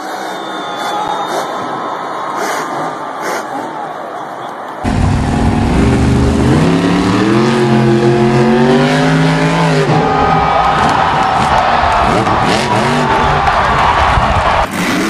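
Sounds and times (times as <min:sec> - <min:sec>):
truck engine revving hard: 0:04.9 - 0:15.0.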